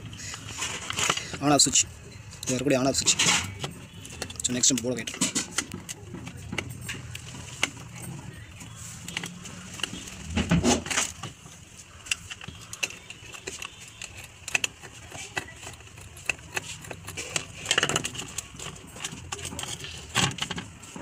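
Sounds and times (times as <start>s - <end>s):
plastic clicks and rattles: 12.0s - 20.8s.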